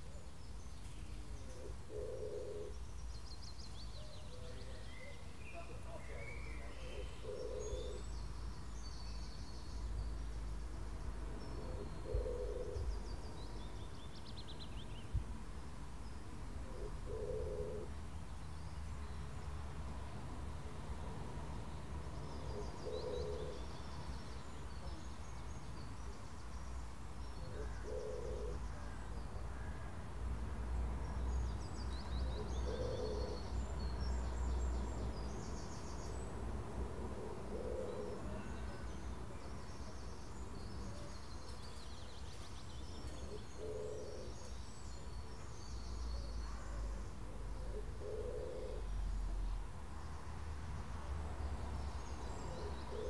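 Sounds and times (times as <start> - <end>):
small birds chirping and trilling: 37.4 - 53.0.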